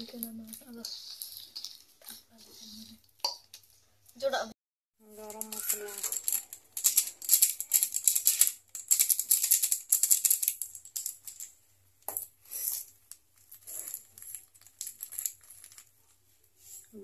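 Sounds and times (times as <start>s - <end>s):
plastic packet crinkling: 5.1s - 11.5s, 13.7s - 16.0s.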